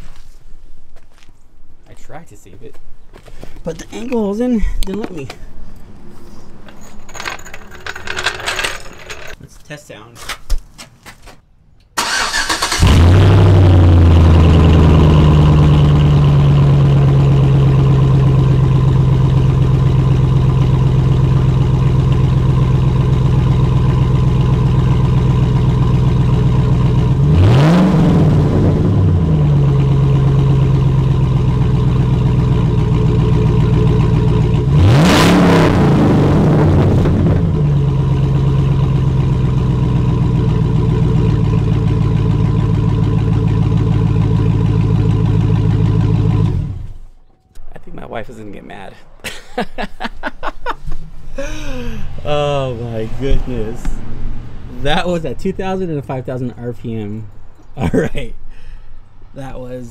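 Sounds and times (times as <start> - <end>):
open exhaust engine idling and revving: 12.3 - 47.2.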